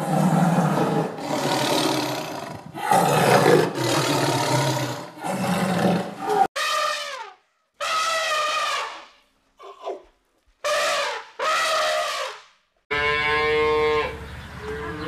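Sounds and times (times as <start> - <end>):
tiger roaring: 0.0 - 6.5.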